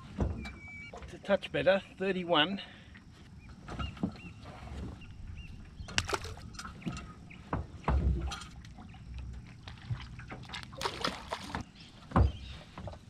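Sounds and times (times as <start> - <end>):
knocks and clatter on metal dinghy: 3.5 - 13.0
light water splashing: 5.9 - 7.1, 8.0 - 11.7.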